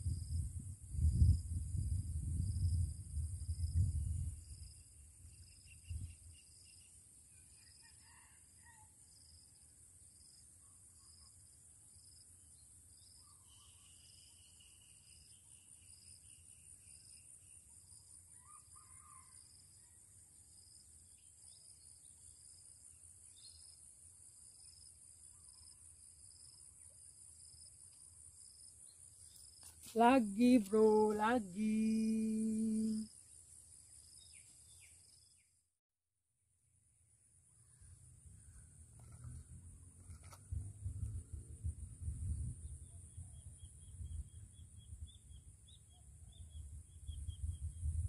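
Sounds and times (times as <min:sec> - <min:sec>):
insect high drone: 0:09.2 - 0:19.9, 0:20.5 - 0:35.3
faint bird chirps: 0:12.6 - 0:20.0, 0:25.3 - 0:25.8
insect pulsing call: 0:28.8 - 0:34.9.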